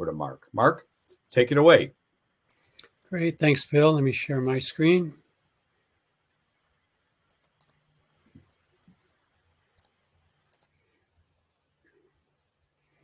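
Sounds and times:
faint computer mouse clicks: 7.3s - 7.8s, 9.8s - 10.8s.

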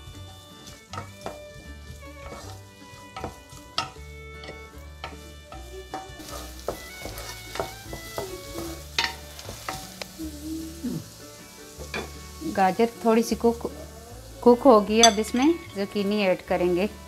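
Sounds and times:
butter sizzling: 0.0s - 17.0s
wooden spoon scraping pot: 0.3s - 10.0s.

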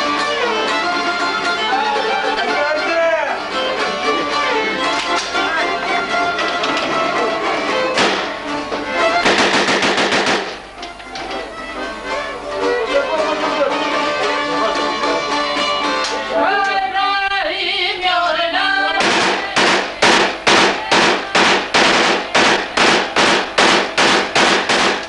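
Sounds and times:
rifle shots: 8.0s - 8.4s, 9.2s - 10.6s, 19.0s - 25.0s
music with singing: 11.0s - 23.1s.

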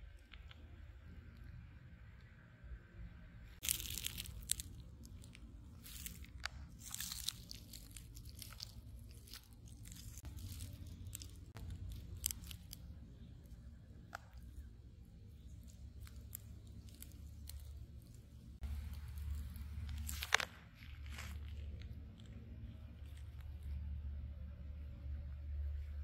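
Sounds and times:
low steady rumble: 0.0s - 26.0s
rustling and crackling: 3.6s - 24.1s.

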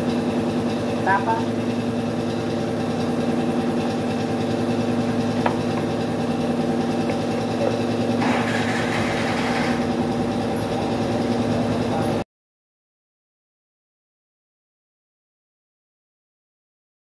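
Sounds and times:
engine idling: 0.0s - 12.2s.

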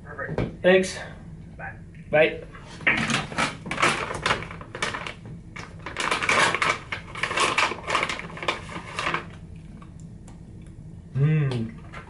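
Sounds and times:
plastic snack bag crinkling: 3.3s - 9.5s.

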